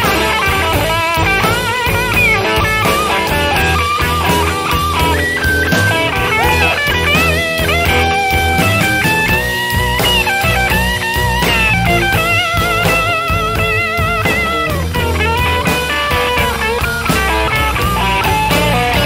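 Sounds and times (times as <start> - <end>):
blues band playing: 0.0 - 19.0
lead guitar bent notes: 0.0 - 19.0.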